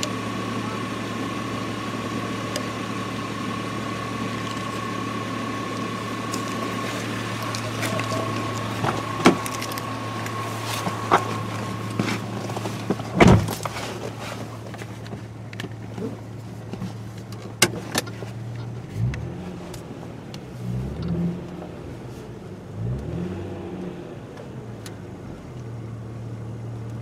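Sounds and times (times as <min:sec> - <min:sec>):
car engine idling: 0:00.0 - 0:27.0
loud thump: 0:13.1 - 0:13.6.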